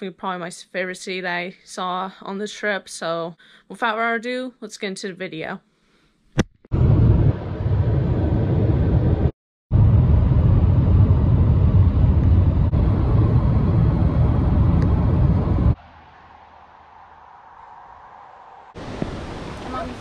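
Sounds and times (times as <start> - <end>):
road and wind noise in car: 9.8 - 20.0.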